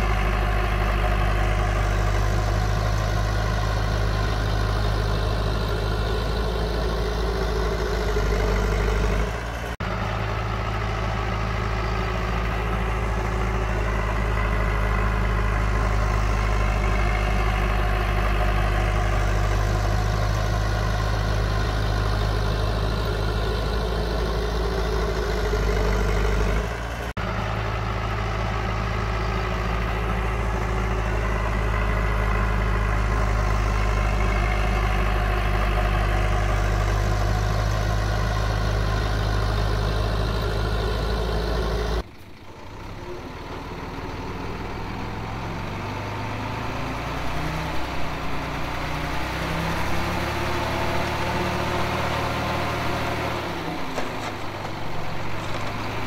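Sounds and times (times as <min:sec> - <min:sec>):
heavy diesel engine humming: 0:00.0 - 0:56.0.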